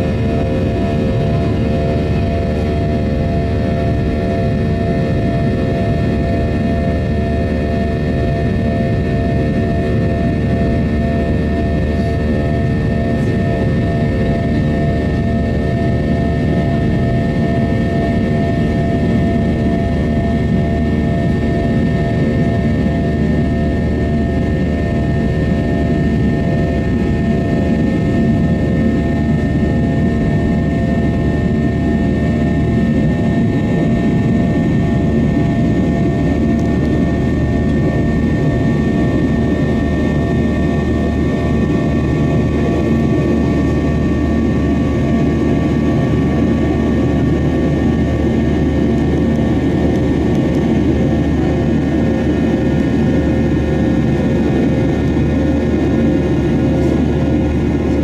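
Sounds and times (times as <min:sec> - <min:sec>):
jet engines roaring: 0:00.0 - 0:58.0.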